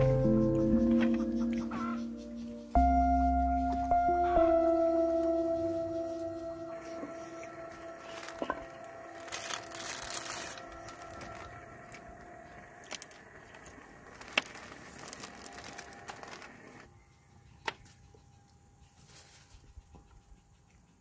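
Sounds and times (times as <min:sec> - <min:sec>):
wrapper crinkling and tearing: 0:07.3 - 0:12.1, 0:12.8 - 0:16.9.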